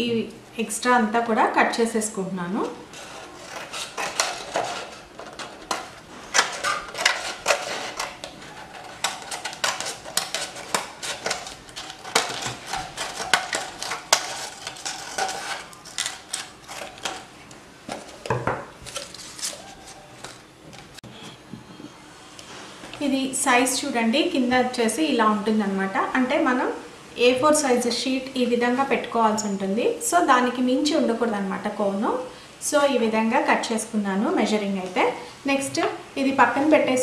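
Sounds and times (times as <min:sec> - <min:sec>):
scissors cutting paper: 0:02.9 - 0:17.3
paper rustling: 0:02.9 - 0:21.0.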